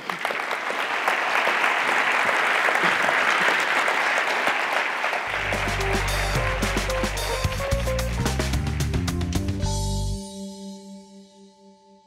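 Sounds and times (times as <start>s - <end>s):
audience applauding: 0.0s - 9.6s
music with low bass and melody: 5.3s - 11.7s.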